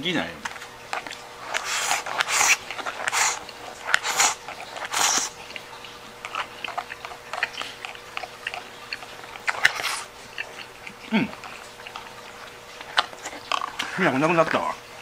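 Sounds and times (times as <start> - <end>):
chewing: 0.4 - 14.9
person slurping noodles: 1.4 - 5.6, 6.3 - 14.0.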